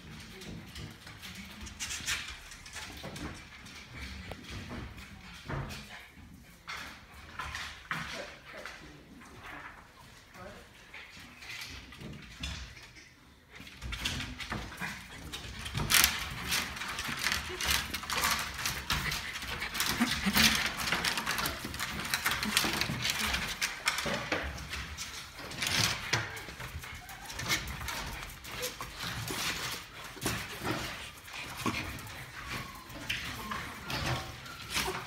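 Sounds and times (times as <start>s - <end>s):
excited dogs: 0.2s - 35.0s
dogs jumping against wooden walls: 13.6s - 35.0s.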